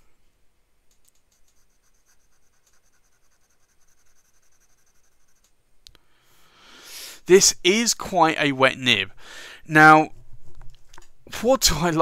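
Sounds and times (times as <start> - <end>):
pen nib scratching on paper: 1.4 - 5.5.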